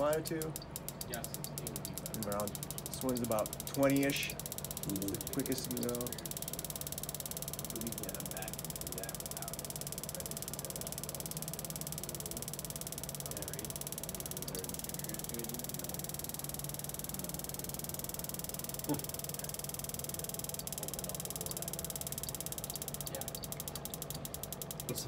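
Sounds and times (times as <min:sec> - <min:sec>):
dosing pump ticking rapidly: 0:00.0 - 0:25.0.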